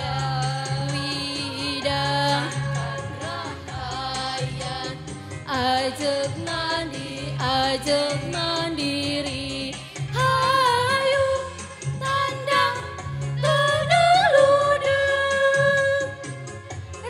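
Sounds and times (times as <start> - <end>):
women's choir singing: 0.0 - 8.8.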